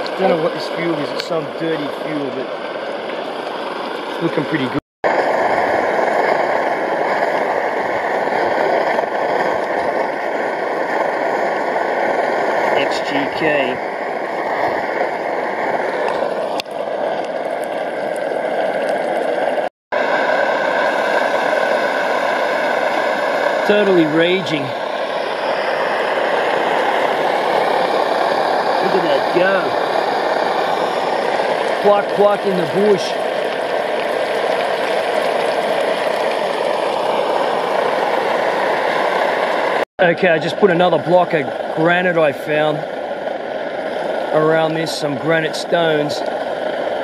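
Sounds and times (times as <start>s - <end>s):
person speaking: 0.0s - 2.4s, 12.8s - 13.8s, 23.6s - 24.8s, 28.8s - 29.8s, 31.8s - 33.2s, 44.3s - 46.2s
chicken frying in oil: 0.0s - 47.0s
stove burner roaring: 0.0s - 47.0s.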